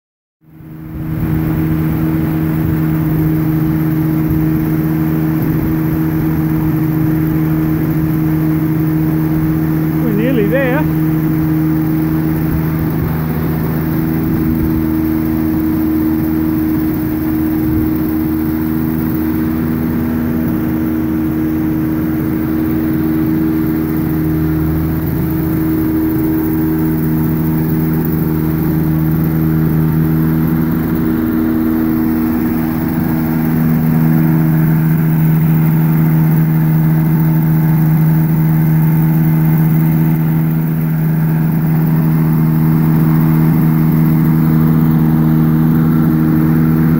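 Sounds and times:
motor droning: 0.4s - 46.9s.

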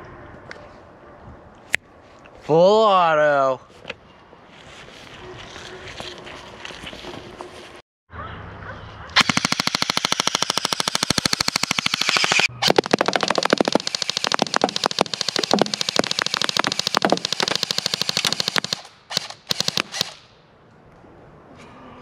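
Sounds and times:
sharp cracks: 9.1s - 20.4s
airsoft rifle firing full auto: 9.2s - 20.2s
balloons popping: 9.4s - 18.8s.

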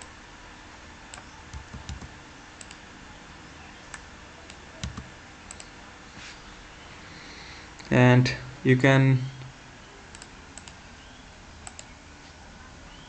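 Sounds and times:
computer keyboard keystrokes: 1.1s - 2.8s, 3.9s - 5.7s, 11.6s - 11.9s
mouse clicks: 1.1s - 2.8s, 10.1s - 10.8s, 11.6s - 11.9s.

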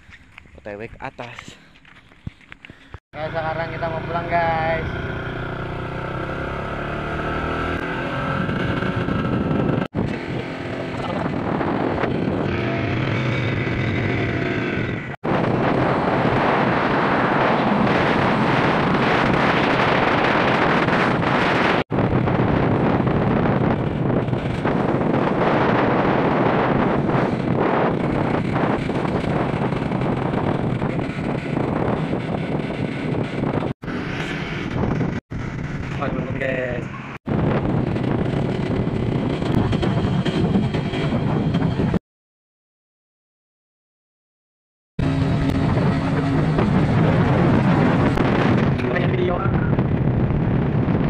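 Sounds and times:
motorcycle engine running: 3.2s - 36.4s, 37.3s - 41.9s
wind rush on microphone: 7.3s - 42.0s, 45.0s - 51.0s.

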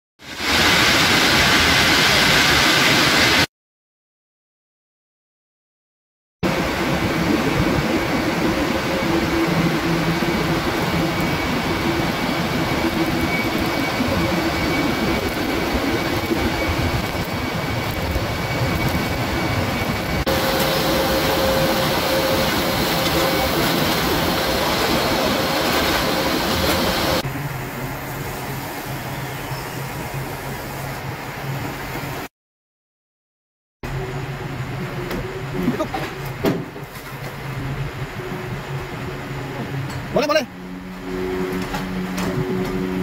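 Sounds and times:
steam venting: 6.8s - 29.1s.

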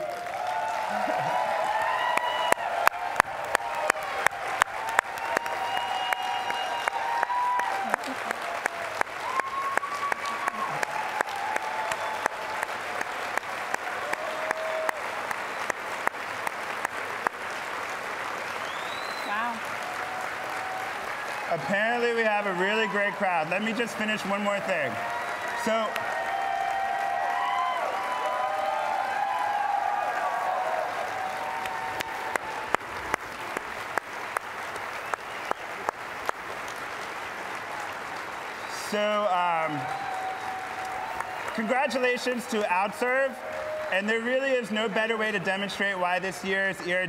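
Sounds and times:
person clapping near microphone: 0.0s - 21.6s, 30.8s - 38.6s
large audience applauding: 0.0s - 47.0s.

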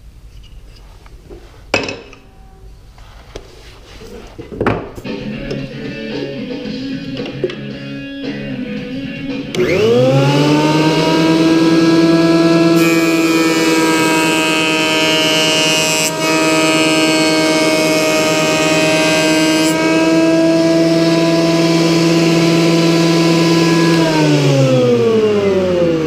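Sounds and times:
jointer knives cutting wood: 9.5s - 25.8s
jointer motor whine: 9.5s - 26.0s.

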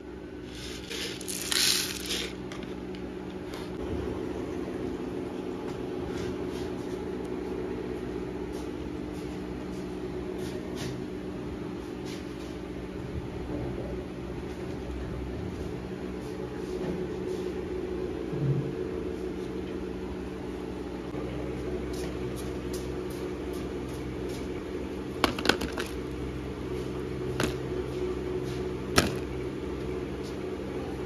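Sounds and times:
steady mechanical hum: 0.0s - 31.0s.

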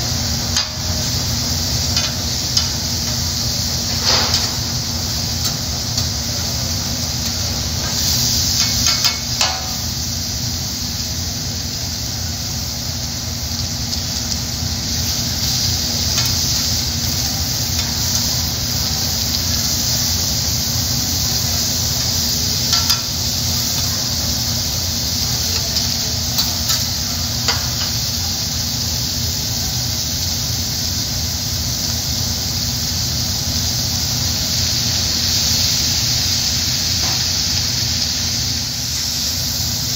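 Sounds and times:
steady low hum: 0.0s - 29.2s
food sizzling on griddle: 0.0s - 39.9s.

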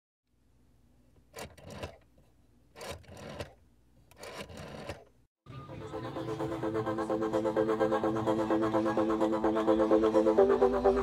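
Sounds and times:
electronic music with pulsing beat: 5.7s - 11.0s.

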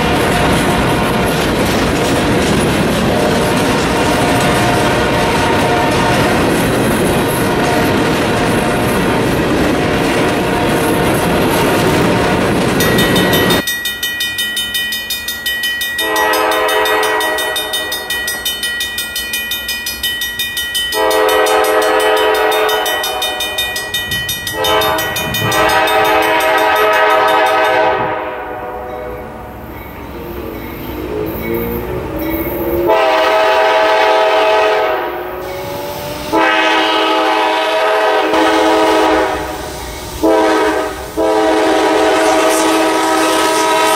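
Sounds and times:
freight train rolling past: 0.0s - 43.9s
locomotive air horn blasts: 3.1s - 6.6s, 7.4s - 8.0s, 9.8s - 12.4s, 16.0s - 18.0s, 21.0s - 23.7s, 24.5s - 29.2s, 32.9s - 35.2s, 36.2s - 43.9s
crossing bell ringing rapidly: 10.8s - 28.1s, 28.9s - 33.1s.

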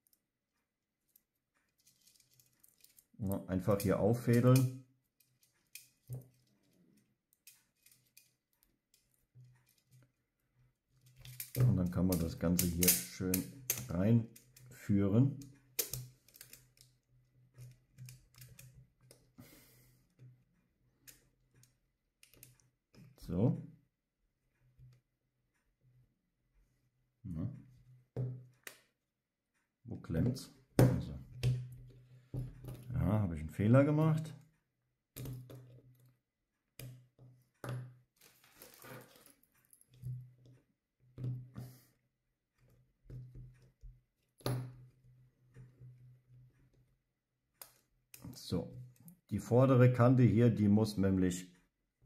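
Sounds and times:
plastic parts scraping: 1.7s - 4.6s, 38.2s - 40.5s
plastic clicks: 11.0s - 14.7s, 15.4s - 17.0s
plastic magazine parts clicking: 15.8s - 16.6s.

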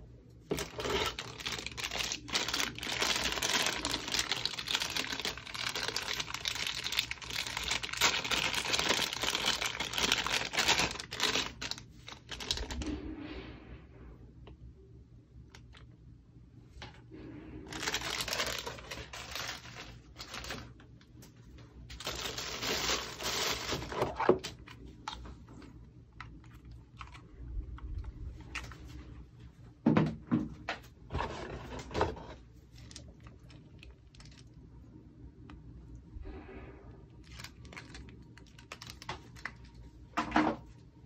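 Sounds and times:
plastic bags rustling and crinkling: 0.5s - 12.9s, 17.6s - 21.0s, 21.9s - 25.2s, 37.2s - 39.8s.

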